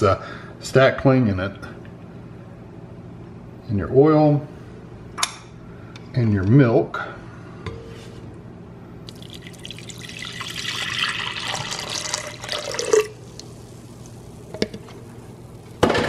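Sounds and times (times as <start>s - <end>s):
milk pouring into a bowl: 9.1s - 14.2s.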